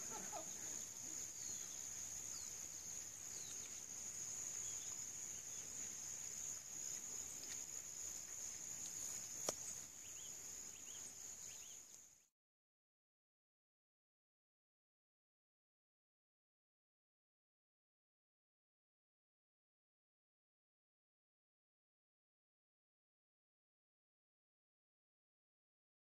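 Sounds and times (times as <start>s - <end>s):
faint bird chirps: 0.0s - 5.9s, 9.0s - 12.3s
insects droning: 0.0s - 12.3s.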